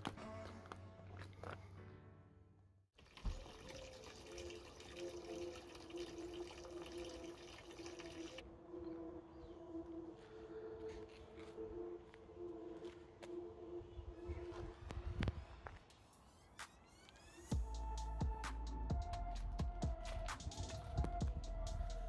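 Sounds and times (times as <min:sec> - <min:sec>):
low sustained background music: 0:00.0 - 0:02.7, 0:03.3 - 0:16.8, 0:17.5 - 0:22.0
water pouring into plastic bucket: 0:03.0 - 0:08.4.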